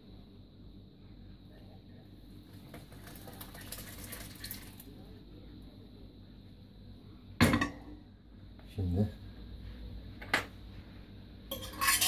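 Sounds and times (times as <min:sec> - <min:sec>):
liquid pouring and splashing: 0:02.5 - 0:04.9
metal pot clank: 0:07.4 - 0:07.9, 0:11.5 - 0:12.0.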